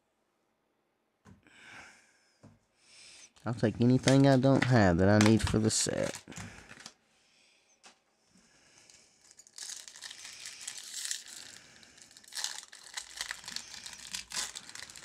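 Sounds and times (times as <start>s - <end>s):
foil wrapper crinkling and tearing: 4.0s - 7.0s, 9.2s - 15.0s.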